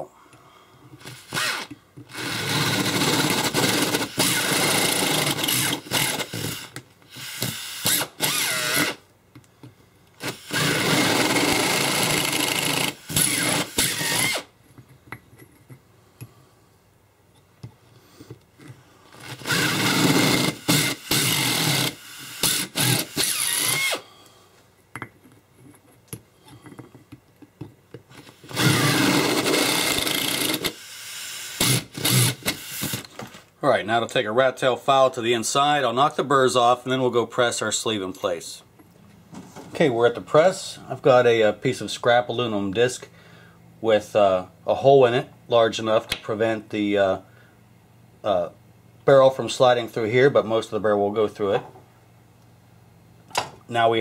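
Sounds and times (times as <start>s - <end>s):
power drill boring through metal: 1.0s - 9.0s, 10.2s - 14.5s, 19.2s - 24.0s, 28.4s - 33.1s.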